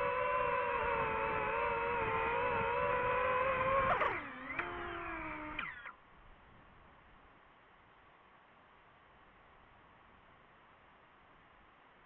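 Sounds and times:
drone propellers whining: 0:00.0 - 0:06.0.

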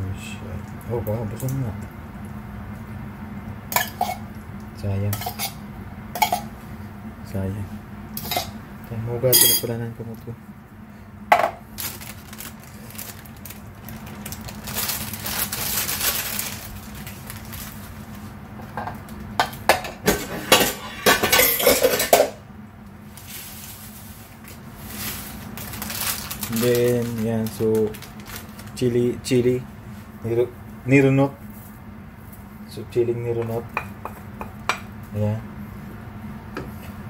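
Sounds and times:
dishes and utensils clinking: 0:09.3 - 0:09.7, 0:19.4 - 0:22.4.

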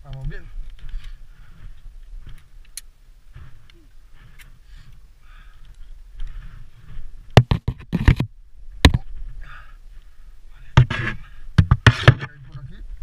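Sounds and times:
sharp loud knocks: 0:07.4 - 0:09.0, 0:10.8 - 0:12.3.

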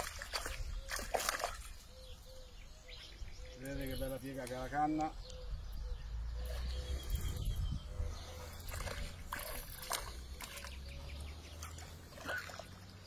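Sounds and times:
fish splashing and thrashing: 0:00.0 - 0:02.0, 0:08.5 - 0:13.0
water sloshing: 0:00.0 - 0:02.2, 0:08.3 - 0:13.0.

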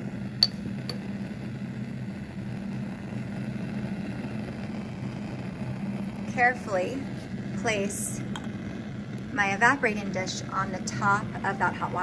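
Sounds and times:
low machine hum: 0:00.0 - 0:12.0
glass test tube clinking on metal: 0:00.4 - 0:01.0.

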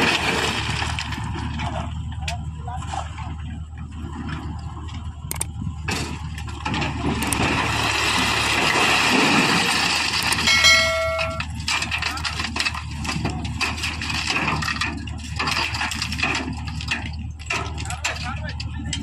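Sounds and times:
diesel engine running under load: 0:00.0 - 0:19.0
high-pitched tone: 0:10.5 - 0:11.5.

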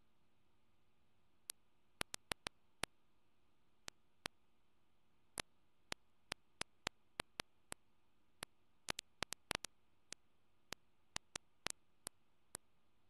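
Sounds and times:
sharp clicks: 0:02.0 - 0:02.6, 0:08.9 - 0:09.7.

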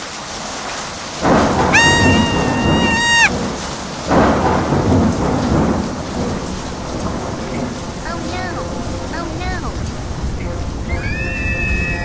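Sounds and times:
rain hissing: 0:00.0 - 0:12.0
thunder rumbling and cracking: 0:01.2 - 0:10.9.

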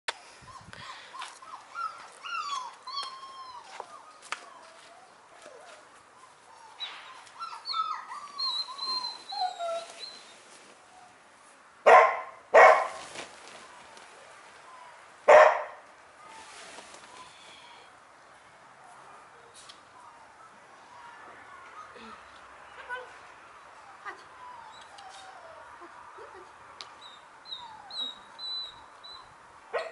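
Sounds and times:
dog whining: 0:01.4 - 0:10.2, 0:23.8 - 0:26.0, 0:27.0 - 0:29.9
dog barking sharply: 0:11.9 - 0:13.0, 0:15.3 - 0:15.8.

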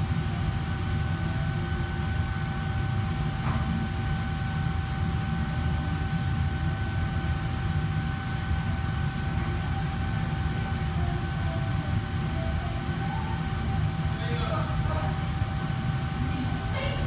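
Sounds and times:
thin constant whine: 0:00.0 - 0:17.0.

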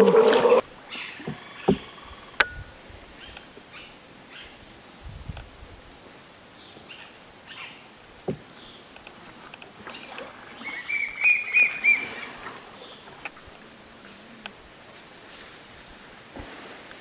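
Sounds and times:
bird chirps: 0:09.9 - 0:13.1.

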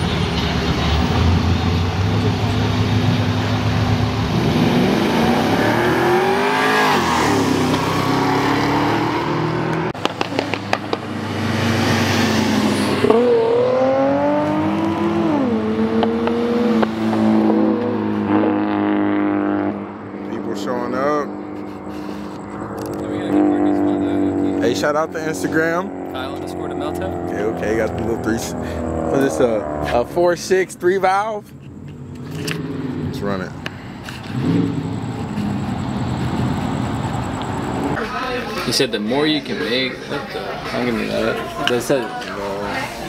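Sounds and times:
car engines revving: 0:00.0 - 0:43.0
sharp cracks: 0:10.0 - 0:11.1.

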